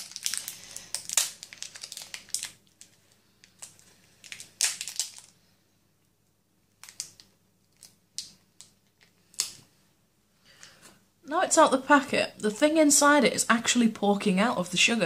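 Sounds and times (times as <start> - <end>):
plastic wrapper crinkling: 0.0 - 5.5, 6.7 - 9.6.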